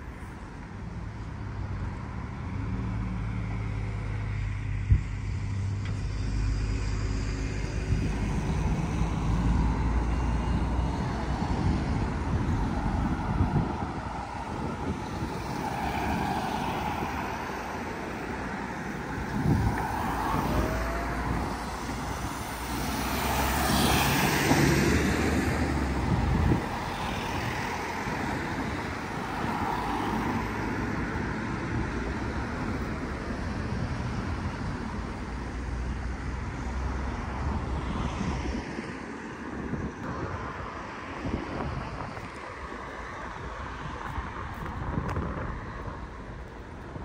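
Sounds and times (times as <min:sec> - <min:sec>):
low traffic rumble: 0:00.0 - 0:47.0
vehicle passing: 0:05.4 - 0:38.6.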